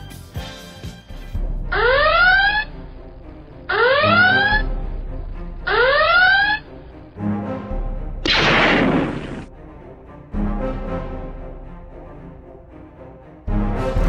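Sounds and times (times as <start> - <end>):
rising electronic alarm whoop: 1.7 - 2.8, 3.7 - 4.7, 5.7 - 6.8.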